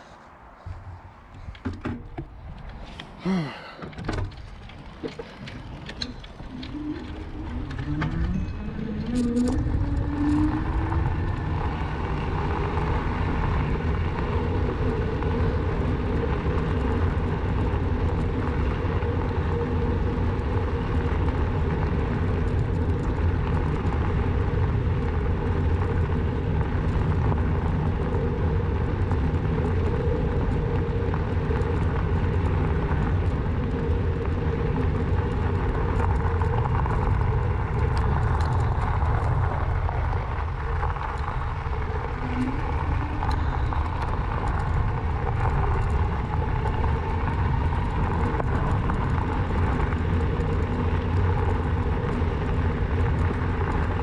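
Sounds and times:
electric bike rolling rumble: 0:00.0 - 0:54.0
faint steady hum: 0:00.0 - 0:54.0
wind rushing: 0:33.2 - 0:54.0.

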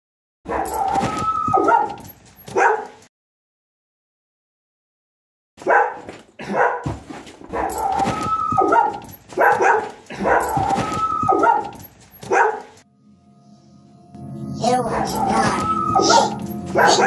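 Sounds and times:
dog barking: 0:00.5 - 0:03.0, 0:05.6 - 0:12.8, 0:14.9 - 0:17.0.

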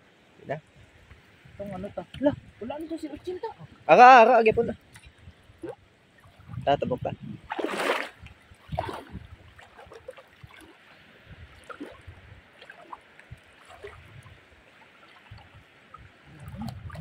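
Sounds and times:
seawater trickling and gurgling: 0:00.2 - 0:17.0
water drips and sloshes: 0:00.2 - 0:17.0.

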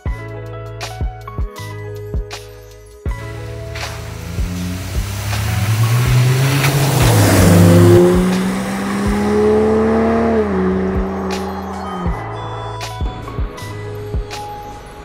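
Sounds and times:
car engine accelerating hard: 0:03.2 - 0:13.8.

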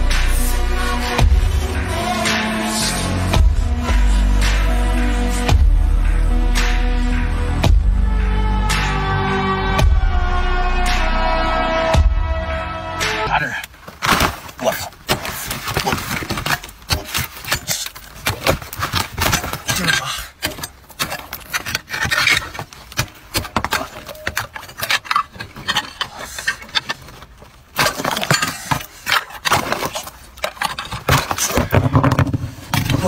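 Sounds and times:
tool chipping ice: 0:14.0 - 0:31.8.

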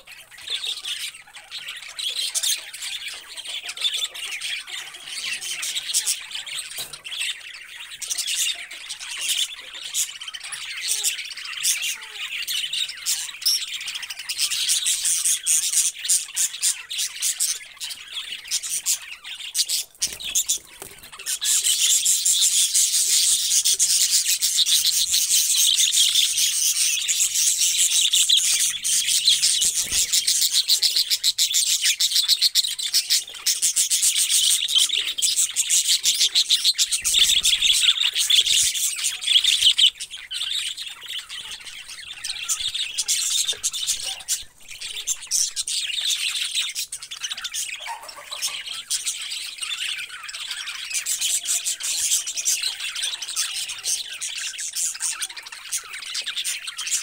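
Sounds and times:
budgerigars chirping and chattering: 0:00.0 - 0:57.0.

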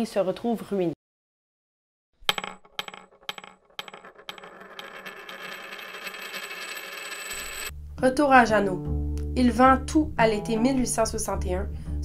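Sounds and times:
metallic coin clinks: 0:02.3 - 0:07.7.

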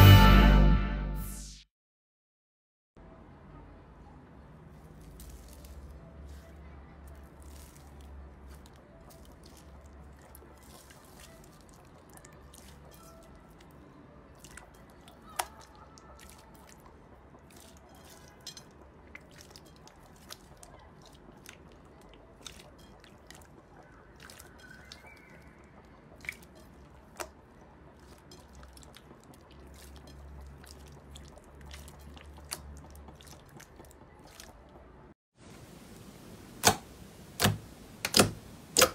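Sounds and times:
slime squishing: 0:04.7 - 0:35.0
sticky clicks and pops: 0:36.6 - 0:38.9.

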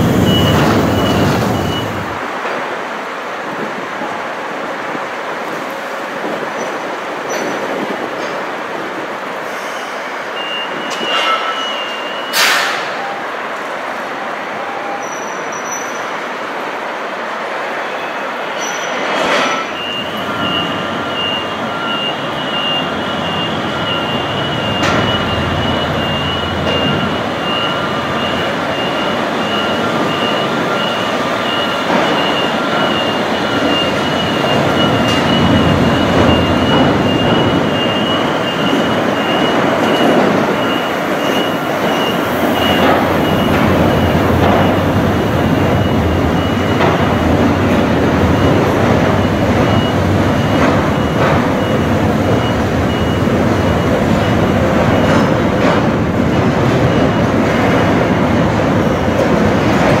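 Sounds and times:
rapid electronic beeps: 0:00.0 - 0:02.2, 0:19.8 - 0:55.4
large vehicle rumbling and rattling: 0:00.0 - 0:14.0, 0:18.6 - 1:00.0.

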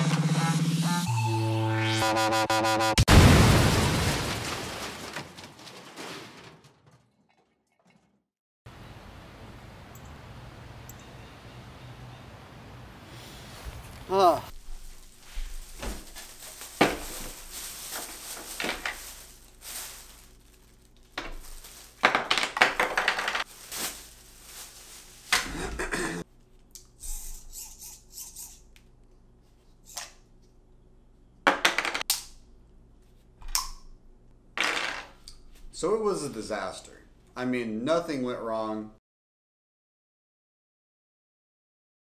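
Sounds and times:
hard objects clattering: 0:15.6 - 0:20.2, 0:21.0 - 0:24.6.

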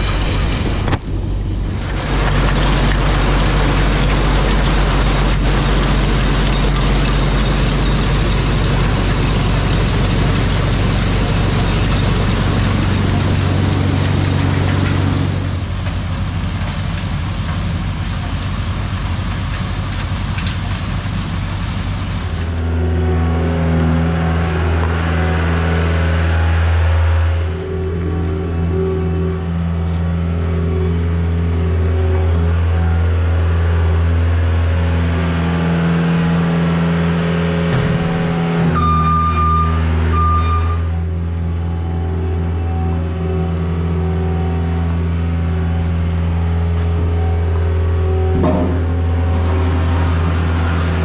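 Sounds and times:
corn sheller machine hum: 0:00.0 - 0:25.9
engine hum: 0:00.0 - 0:51.0.

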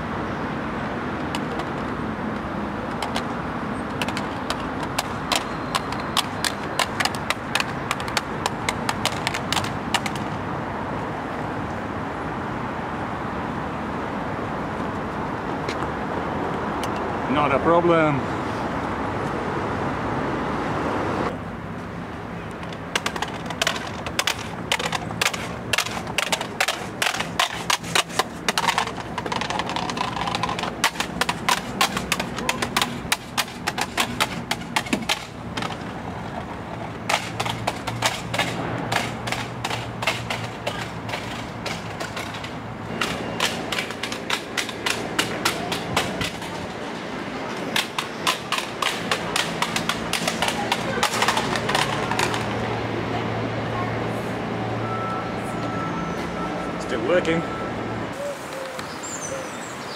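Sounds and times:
multimeter clattering down stone steps: 0:22.6 - 0:35.8.

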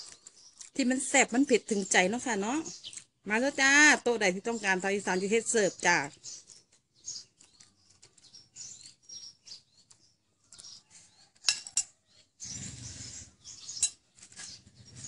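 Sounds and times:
handling ticks and rustles: 0:00.0 - 0:04.0, 0:04.7 - 0:15.0.

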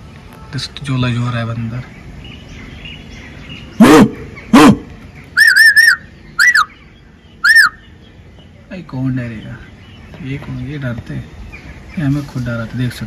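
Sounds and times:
loud harsh animal calls: 0:03.6 - 0:08.0
short high chirps: 0:05.4 - 0:06.7.

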